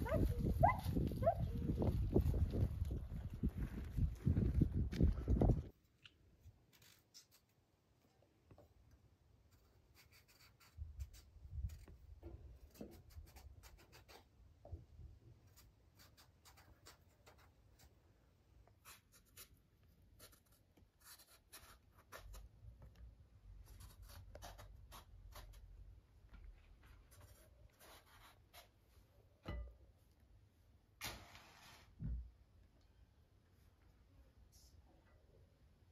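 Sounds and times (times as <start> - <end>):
knife scraping eggplant skin: 9.5 - 12.0, 23.6 - 25.7.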